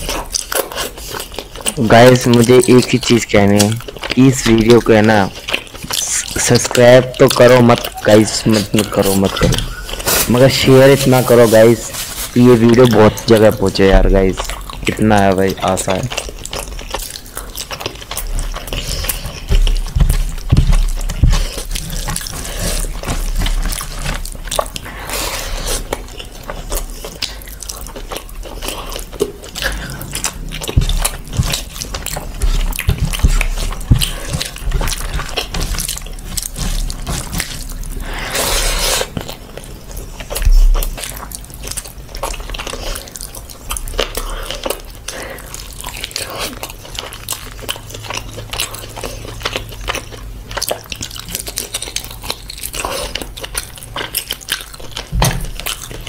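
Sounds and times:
chewing and lip-smacking: 0.0s - 56.0s
dull thump: 55.1s - 55.5s.

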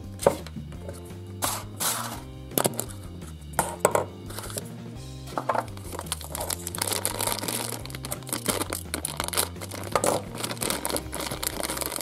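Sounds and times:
plastic wrapper crinkling and tearing: 5.5s - 12.0s.

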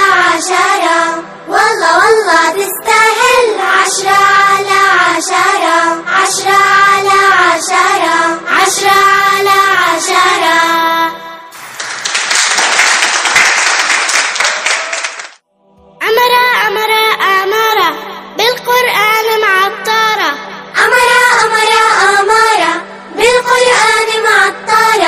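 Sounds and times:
child singing: 0.0s - 11.2s, 16.0s - 25.0s
clapping: 11.5s - 15.4s.

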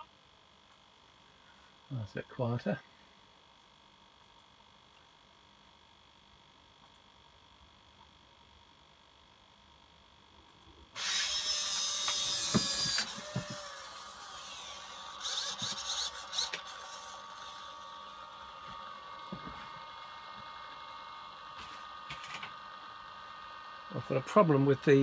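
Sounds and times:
steady servo hum: 0.0s - 25.0s
servo motors whirring and grinding: 11.0s - 24.3s.

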